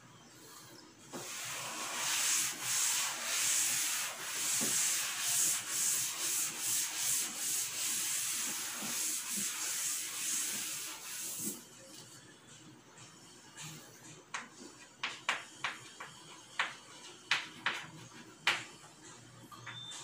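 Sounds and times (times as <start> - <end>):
duster rubbing on blackboard: 1.2 - 11.6.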